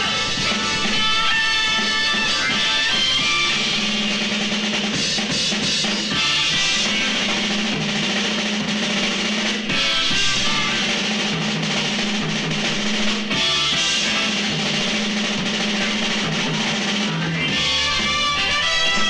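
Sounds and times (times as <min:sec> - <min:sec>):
drum kit: 0:00.0 - 0:19.0
rock band playing: 0:00.0 - 0:19.0.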